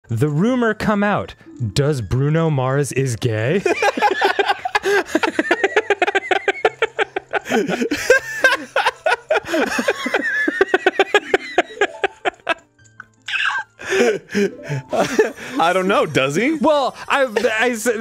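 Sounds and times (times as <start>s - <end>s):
people laughing hard: 3.6s - 12.6s, 13.3s - 16.2s.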